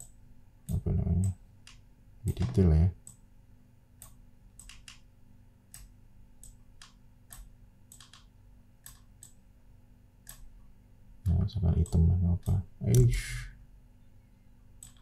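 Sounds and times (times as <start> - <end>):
computer mouse clicking: 0.0 - 3.2, 4.0 - 5.1, 5.7 - 9.4, 10.2 - 10.5, 14.8 - 15.0
faint low hum: 0.0 - 15.0.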